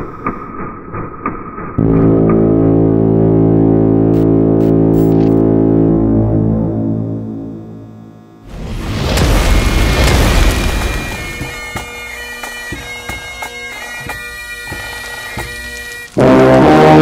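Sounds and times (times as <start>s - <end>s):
loud electronic rumbling: 1.6s - 11.7s
loud drone of held pitches: 1.8s - 11.8s
steady electronic tones: 1.8s - 11.9s
sharp glitchy clicks: 4.1s - 5.5s.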